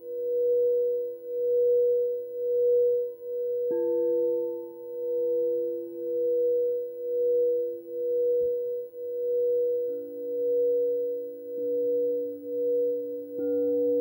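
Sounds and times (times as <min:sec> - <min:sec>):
lower bowl tone: 0:00.0 - 0:14.0
singing bowl steady tone: 0:00.0 - 0:14.0.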